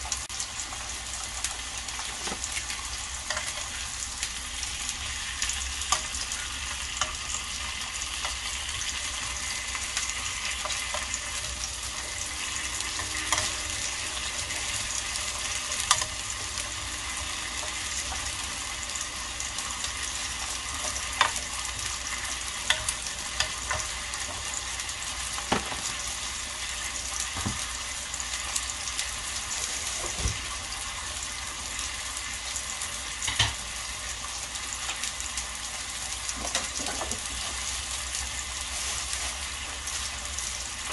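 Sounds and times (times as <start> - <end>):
steaks sizzling in a grill pan: 0.0 - 40.9.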